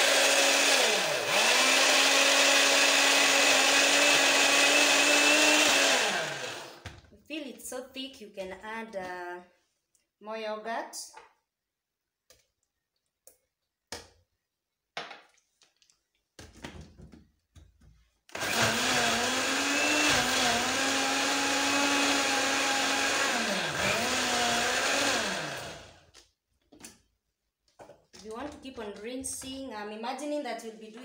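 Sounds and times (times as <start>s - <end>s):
electric blender running: 0.0s - 7.0s, 18.3s - 26.0s.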